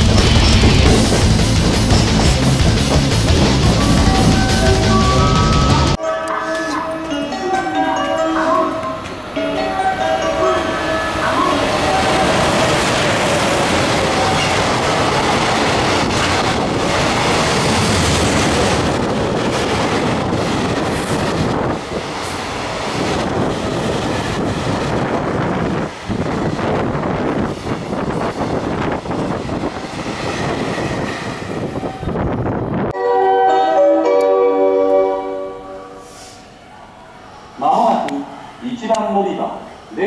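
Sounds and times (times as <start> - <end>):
rail-joint clatter: 0.0 - 5.0
train wheels rumbling on track: 0.0 - 6.0, 11.5 - 32.9.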